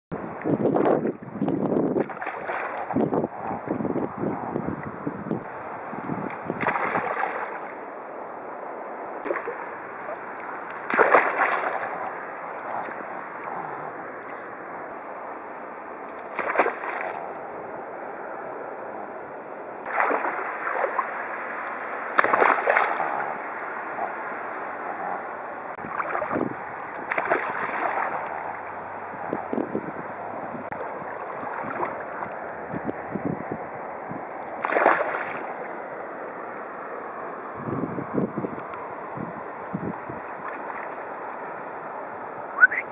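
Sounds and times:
water lapping: 0:01.8 - 0:15.0, 0:16.1 - 0:18.3, 0:19.8 - 0:33.2, 0:34.4 - 0:36.8, 0:39.8 - 0:41.9
dog splashing through water: 0:02.0 - 0:03.6, 0:06.6 - 0:07.7, 0:10.1 - 0:13.6, 0:16.2 - 0:17.2, 0:19.9 - 0:21.1, 0:22.1 - 0:24.2, 0:25.9 - 0:28.7, 0:34.6 - 0:35.6.

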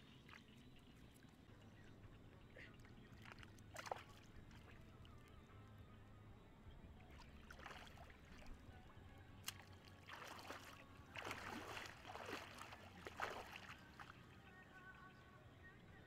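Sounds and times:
shallow water splashing: 0:02.6 - 0:05.3, 0:07.0 - 0:08.7, 0:09.4 - 0:14.4.

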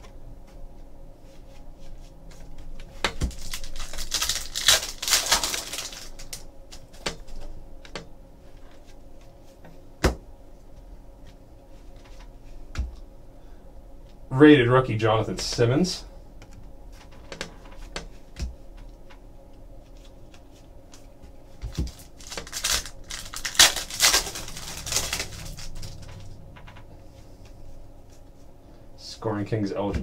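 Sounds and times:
plastic wrapper crinkling and tearing: 0:03.1 - 0:07.4, 0:21.7 - 0:26.4.

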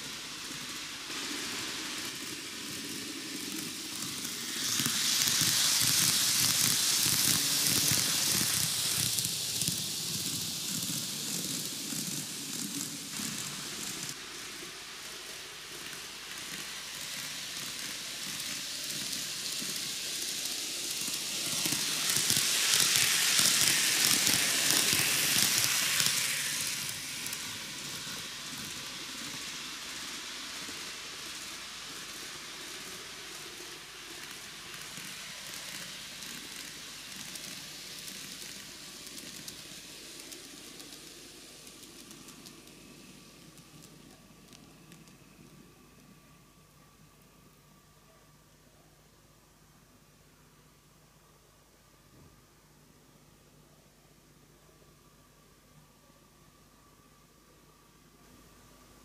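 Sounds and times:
model train wheels rattling: 0:00.0 - 0:45.0.

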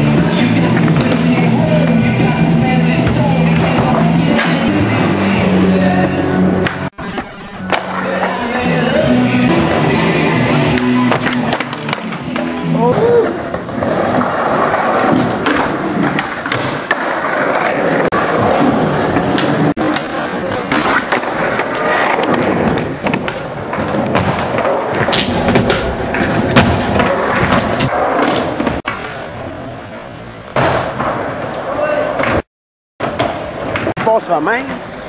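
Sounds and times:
background music with bass line: 0:00.0 - 0:13.1
skateboard wheels rolling on wood: 0:00.0 - 0:32.4
skateboard clacks and slaps: 0:10.7 - 0:29.3, 0:33.0 - 0:34.9.

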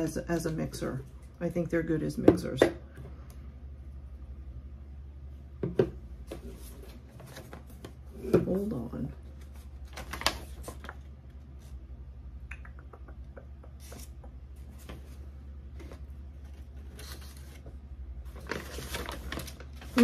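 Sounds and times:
steady low hum: 0:00.0 - 0:20.0
paper rustling: 0:09.2 - 0:11.7, 0:13.8 - 0:20.0.

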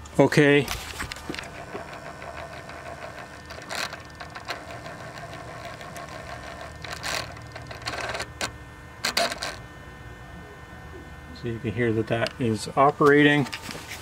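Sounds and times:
small motor buzzing and clicking: 0:00.7 - 0:09.7.

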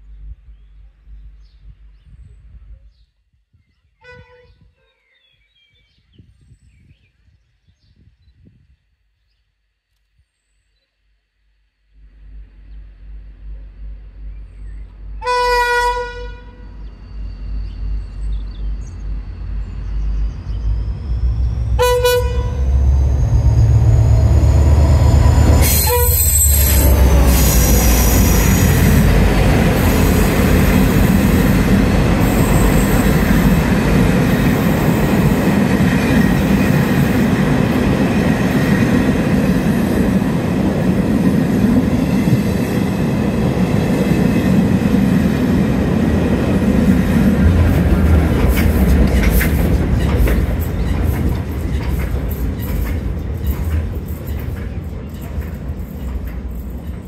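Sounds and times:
diesel locomotive engine rumble: 0:00.0 - 0:03.0, 0:11.4 - 0:57.0
locomotive horn blasts: 0:04.0 - 0:04.7, 0:15.2 - 0:16.8, 0:21.8 - 0:22.8, 0:25.6 - 0:27.4
train wheels rumbling on rails: 0:12.0 - 0:57.0.

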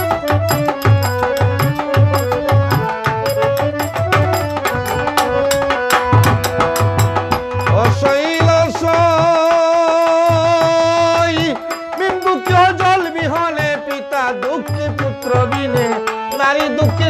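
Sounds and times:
drum beating steady rhythm: 0:00.0 - 0:17.0
harmonium melody: 0:00.0 - 0:17.0.

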